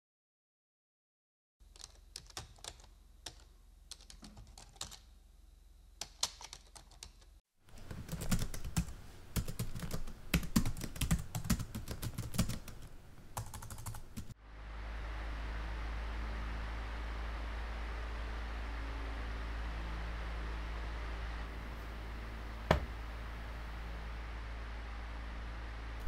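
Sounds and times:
typing on laptop keyboard: 1.7s - 5.1s, 6.0s - 14.4s.

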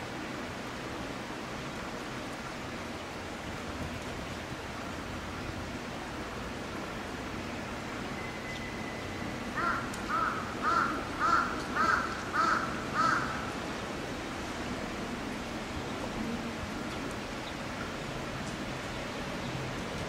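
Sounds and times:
rain hissing: 0.0s - 20.0s
crow cawing: 9.6s - 13.6s.

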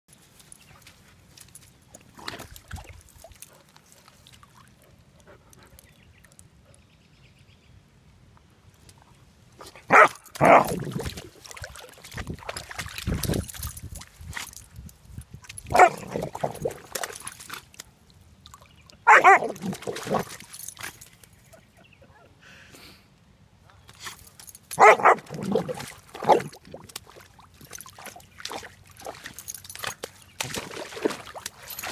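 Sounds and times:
water splashing and sloshing: 0.1s - 6.5s, 8.6s - 21.6s, 23.9s - 31.9s
puppy barking into water: 9.6s - 11.3s, 15.7s - 17.2s, 19.0s - 20.4s, 24.8s - 26.9s.

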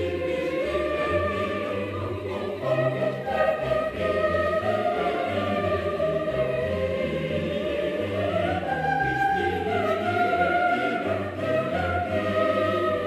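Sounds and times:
choral voices holding long notes: 0.0s - 13.0s.

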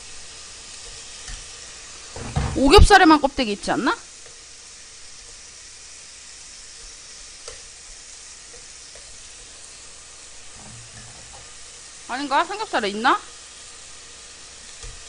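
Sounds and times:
pork sizzling in a frying pan: 0.0s - 15.0s
metal tongs tapping a pan: 7.4s - 7.7s, 8.5s - 9.5s, 10.6s - 11.5s.

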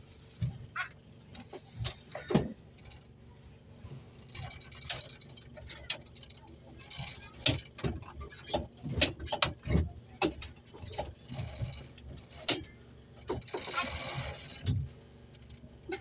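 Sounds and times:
metal levers clicking and rattling: 4.2s - 16.0s.

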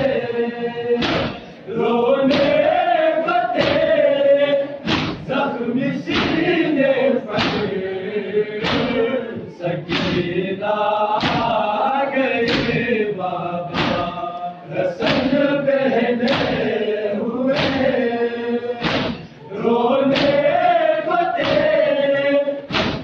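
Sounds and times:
men chanting together: 0.0s - 23.0s
hands beating on chests: 1.0s - 1.4s, 3.6s - 4.0s, 7.3s - 7.8s, 11.2s - 11.6s, 12.5s - 12.8s, 13.7s - 14.1s, 16.2s - 16.6s, 17.5s - 18.0s, 18.8s - 19.3s, 20.1s - 20.5s, 21.4s - 21.9s, 22.7s - 23.0s.

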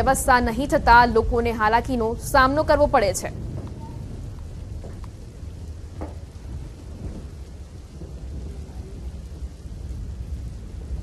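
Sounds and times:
low outdoor rumble: 0.0s - 11.0s
faint knocks: 5.9s - 6.3s.

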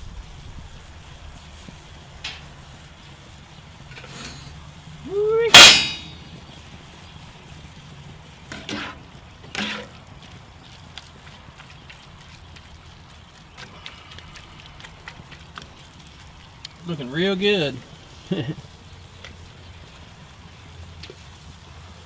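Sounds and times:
metal tongs scraping skillet: 3.9s - 4.6s, 5.5s - 6.2s, 8.5s - 10.0s
loud metallic clang: 5.5s - 6.2s.

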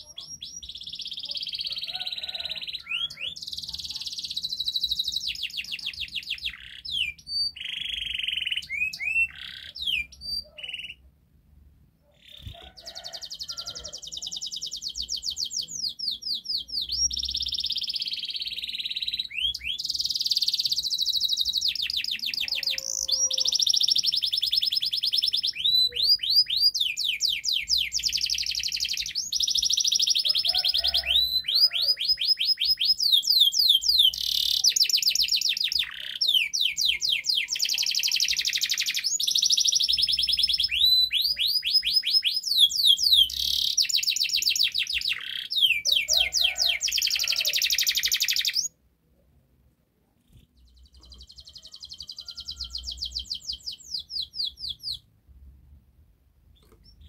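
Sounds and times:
canary singing trills: 0.0s - 11.1s, 12.0s - 48.8s, 50.2s - 55.1s, 56.5s - 57.0s.

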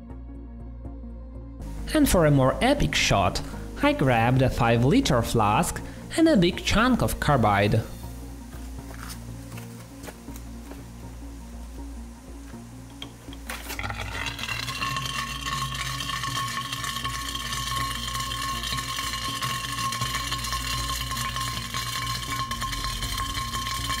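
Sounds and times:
high ringing tones: 13.8s - 24.0s.

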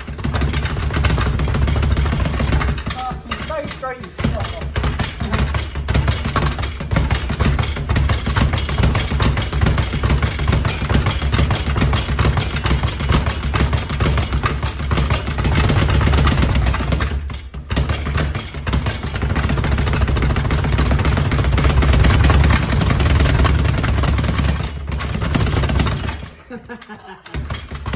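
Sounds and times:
speed bag rattling: 0.0s - 27.9s.

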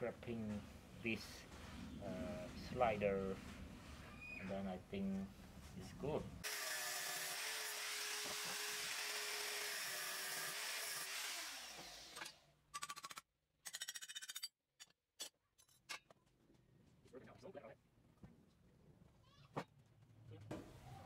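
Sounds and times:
angle grinder running: 6.4s - 12.2s.

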